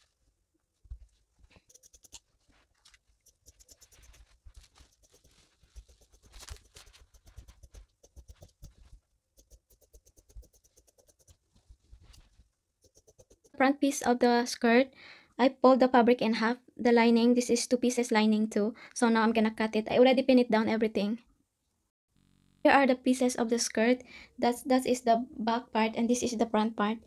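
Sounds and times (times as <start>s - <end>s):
satin fabric rustling: 0.0s - 9.1s, 10.6s - 12.7s
small clicks: 1.6s - 11.4s.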